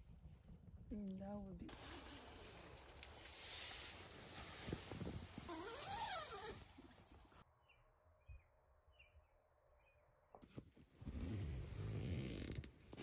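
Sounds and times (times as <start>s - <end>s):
sleeping bags rustling and thumping: 1.7s - 7.1s.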